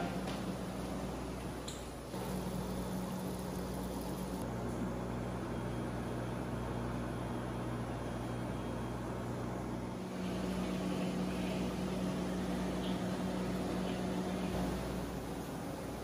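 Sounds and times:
aquarium equipment hum: 0.0 - 16.0
water wash: 2.2 - 4.4.

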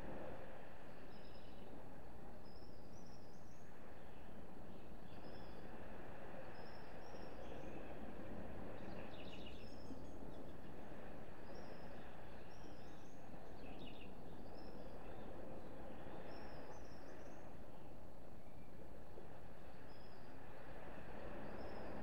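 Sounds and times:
low background hiss: 0.0 - 22.0
small birds chirping: 8.8 - 18.8.

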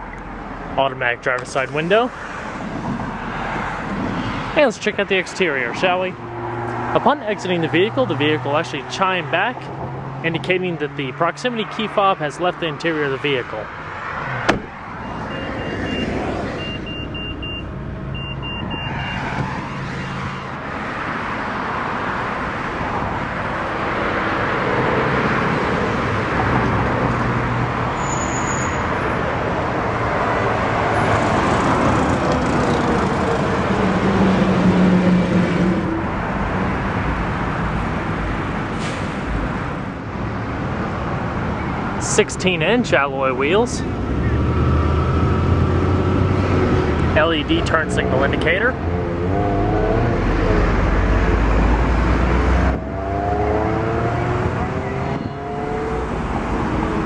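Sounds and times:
road traffic noise: 0.0 - 57.0
short high beeps: 15.0 - 19.9.

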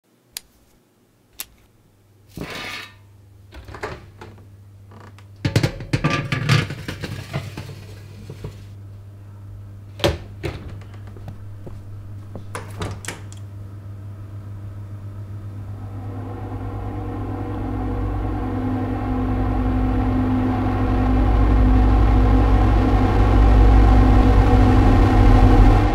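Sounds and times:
oven humming: 2.0 - 25.9
low rumbling drone: 14.1 - 25.9.

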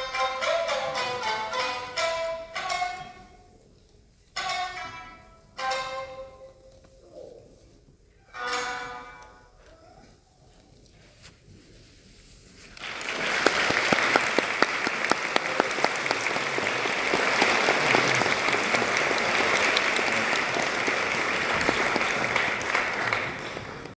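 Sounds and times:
audience applauding: 12.8 - 24.0.

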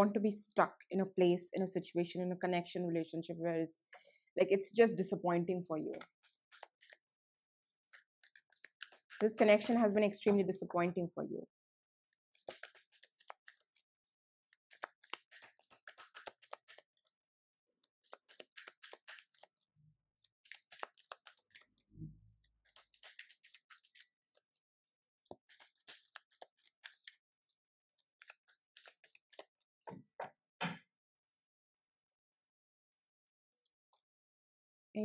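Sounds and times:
cards being shuffled: 5.7 - 7.1, 7.8 - 9.9, 12.4 - 13.8, 14.6 - 17.1, 17.8 - 19.6, 20.4 - 21.7, 22.6 - 24.6, 25.2 - 29.6.

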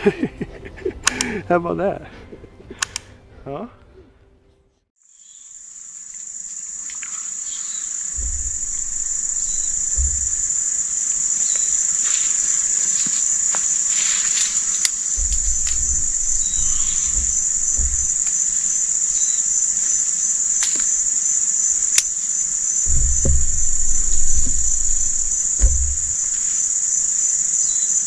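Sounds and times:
crickets trilling: 5.0 - 28.0
low microphone rumbles: 8.1 - 11.0, 15.2 - 18.7, 22.9 - 26.5.

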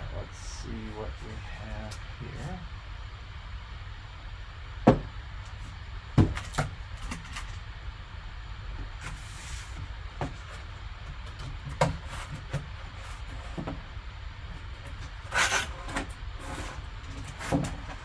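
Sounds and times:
steady low hum: 0.0 - 18.0
cardboard box knocks and taps: 4.9 - 5.1, 6.2 - 6.7
cardboard sliding scrape: 9.0 - 9.8, 15.3 - 17.9.

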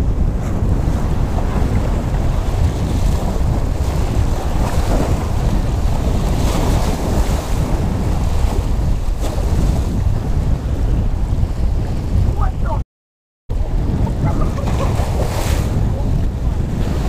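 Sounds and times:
wind buffeting microphone: 0.0 - 12.8, 13.5 - 17.0
waves washing over rocks: 0.6 - 9.8.

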